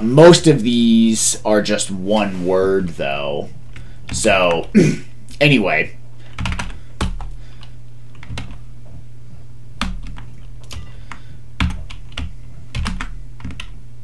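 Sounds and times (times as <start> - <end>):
steady low hum: 0.0 - 14.0
computer keyboard clicks: 6.3 - 8.6, 9.8 - 13.8.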